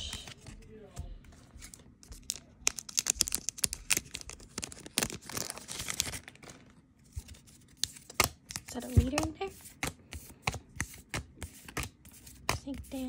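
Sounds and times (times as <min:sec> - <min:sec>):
wrapper crackling: 0:02.2 - 0:06.9
wrapper tearing rustle: 0:02.2 - 0:08.0.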